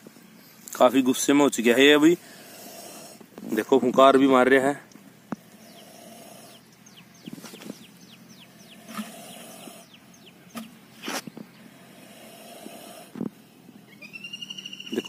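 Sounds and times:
snake hissing: 2.2 - 3.3, 5.4 - 6.7, 8.4 - 9.9, 10.9 - 13.2
falling bird chirps: 13.9 - 15.0.

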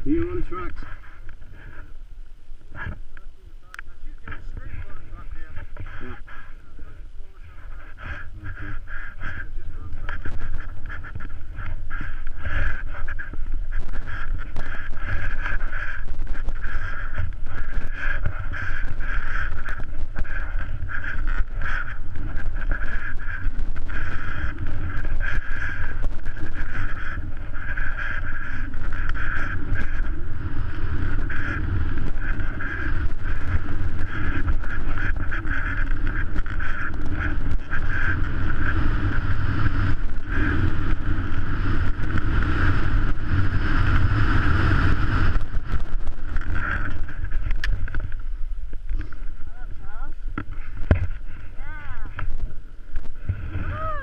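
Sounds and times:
wind buffeting microphone: 0.0 - 54.0.

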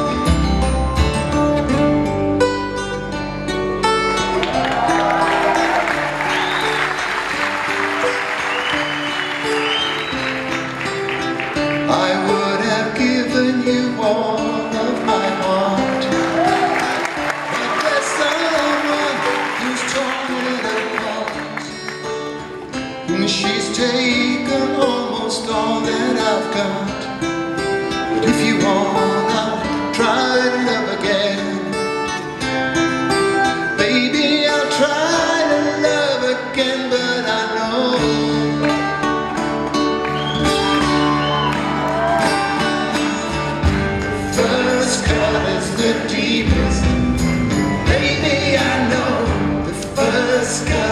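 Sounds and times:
acoustic guitar: 0.0 - 50.9
backing band playing: 0.0 - 50.9
low bass notes: 43.4 - 50.9.

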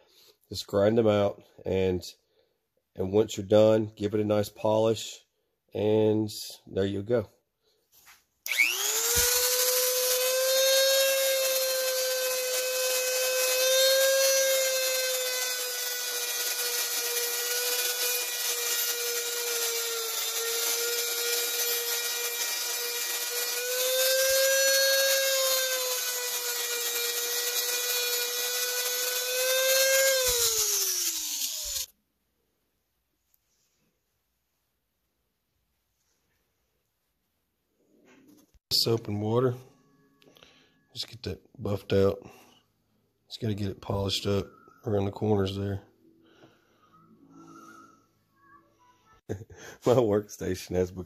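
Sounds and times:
rotary tool whining and grinding: 8.4 - 31.9.

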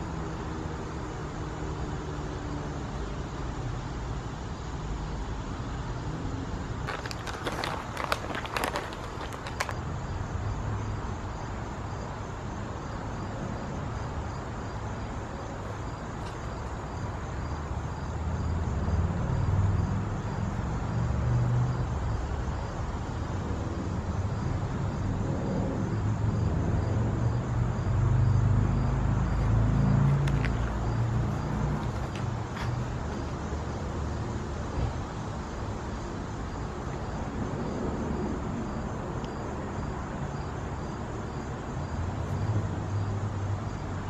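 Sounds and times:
distant road traffic rumble: 0.0 - 44.0
faint insect chirping: 0.0 - 44.0.

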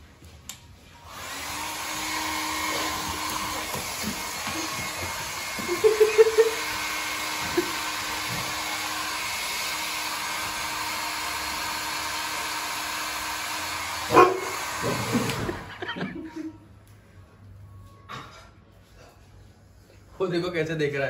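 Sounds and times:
hair dryer blowing: 1.0 - 16.4
puppy barking: 14.1 - 15.0.

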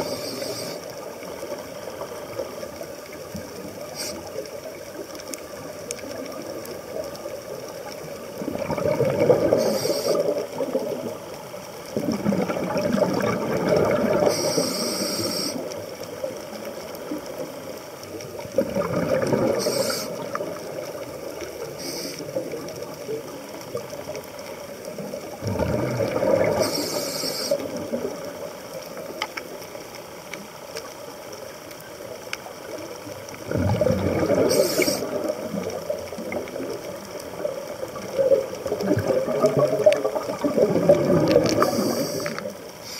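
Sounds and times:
diver breathing through regulator: 0.0 - 0.9, 9.4 - 10.4, 14.2 - 15.7, 19.5 - 20.2, 21.8 - 22.4, 26.4 - 27.7, 34.3 - 35.2, 41.5 - 42.9
steady hiss: 0.0 - 8.6, 9.3 - 12.0, 14.0 - 18.5, 19.3 - 25.4, 26.3 - 33.5, 34.2 - 38.8, 41.3 - 42.9
exhaled bubbles gurgling: 0.0 - 42.9.

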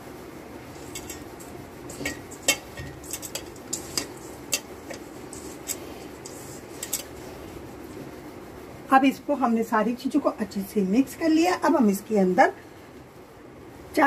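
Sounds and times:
clinks against steel mixing bowl: 0.8 - 5.8.

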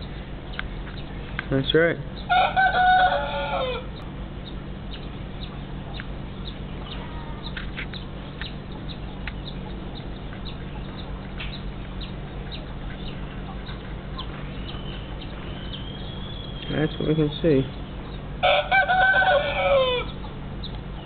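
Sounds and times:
steady low hum: 0.0 - 21.0
rooster crowing: 2.3 - 4.0, 18.4 - 20.2.

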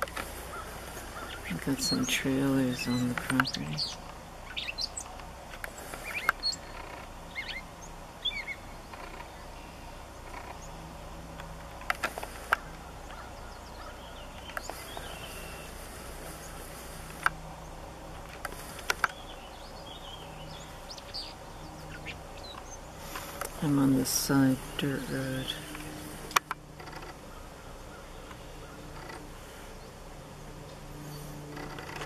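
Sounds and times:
sharp clicks: 2.8 - 7.6, 11.3 - 13.2, 14.4 - 15.2, 17.0 - 17.4, 18.1 - 19.2, 25.6 - 27.3
short bird chirps: 5.9 - 7.6.

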